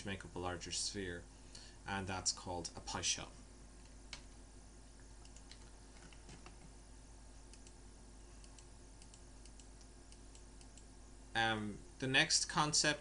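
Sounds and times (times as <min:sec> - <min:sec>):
low steady hum: 0:00.0 - 0:13.0
computer keyboard clicking: 0:05.2 - 0:06.6.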